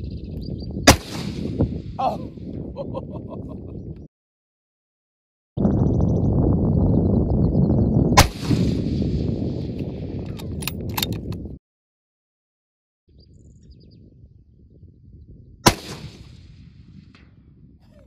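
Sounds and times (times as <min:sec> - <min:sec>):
rifle shot: 0:00.9 - 0:01.6, 0:08.2 - 0:09.6, 0:15.6 - 0:16.6.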